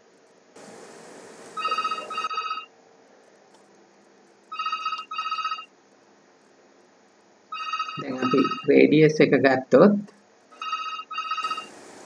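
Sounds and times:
soft hiss: 0.0s - 4.5s
telephone double ring: 1.6s - 2.7s, 4.5s - 5.7s, 7.5s - 8.7s, 10.6s - 11.7s.

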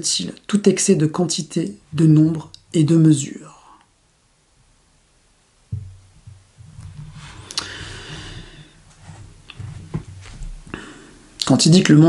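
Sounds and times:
breathing close to microphone: 7.1s - 10.0s, 10.6s - 11.4s.

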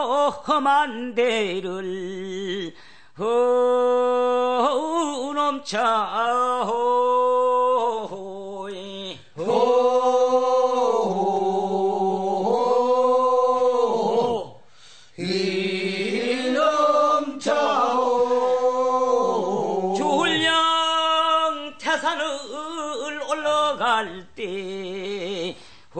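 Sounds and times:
unaccompanied chanted singing: 9.2s - 14.6s, 15.2s - 22.2s.

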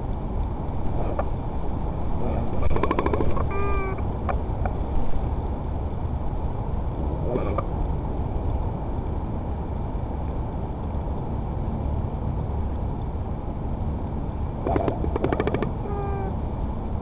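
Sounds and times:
bird call: 2.6s - 4.0s.

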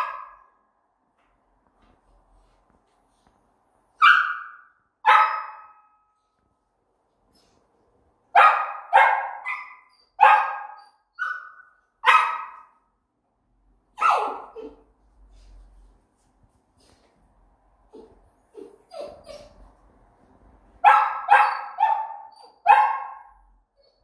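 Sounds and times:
puppy barking: 0.0s - 0.6s, 4.0s - 6.0s, 8.3s - 12.8s, 14.0s - 14.9s, 20.8s - 24.0s.

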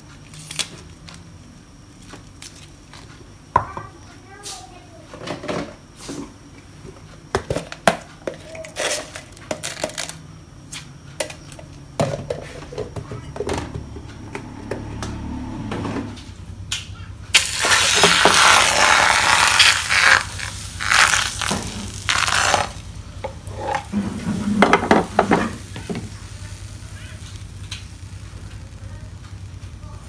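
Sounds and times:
egg sizzling in frying pan: 17.3s - 30.0s.

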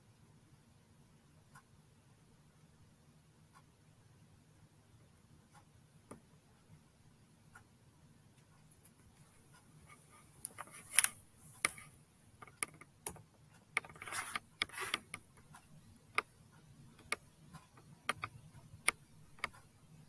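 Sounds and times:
rustling: 8.6s - 12.8s, 13.6s - 15.6s
sharp clicks and taps: 10.4s - 19.7s.

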